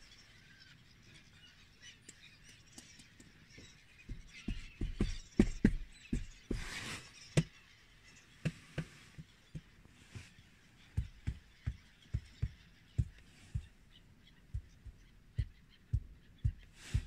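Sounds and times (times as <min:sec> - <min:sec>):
sharp low thumps: 0:11.0 - 0:13.8, 0:14.5 - 0:17.0.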